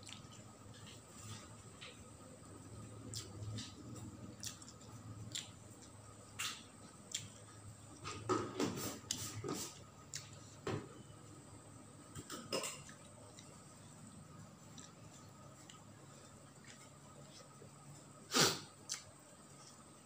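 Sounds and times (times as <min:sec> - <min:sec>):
wet chewing: 0:00.0 - 0:00.9, 0:03.1 - 0:07.6, 0:14.6 - 0:17.6.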